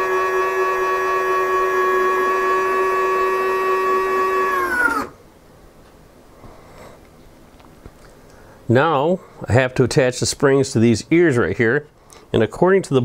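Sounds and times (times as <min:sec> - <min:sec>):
retract motor whining: 0:00.0 - 0:05.2.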